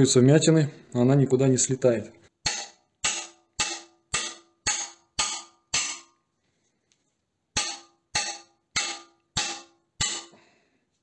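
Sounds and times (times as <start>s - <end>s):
hammer striking metal plate: 2.4s - 6.2s, 7.6s - 10.4s.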